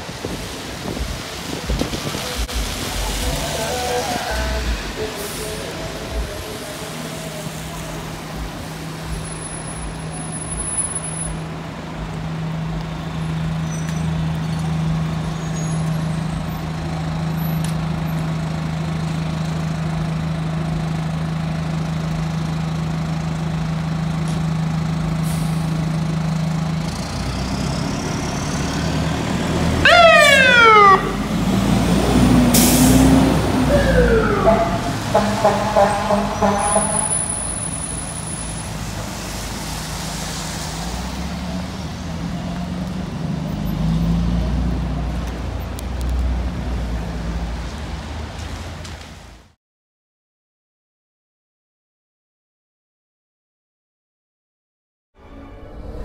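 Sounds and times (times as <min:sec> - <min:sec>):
diesel engine humming: 0:00.0 - 0:48.8
air brake hiss: 0:25.2 - 0:25.8, 0:32.5 - 0:33.2
electronic siren sweeps: 0:29.8 - 0:31.4, 0:33.4 - 0:38.1.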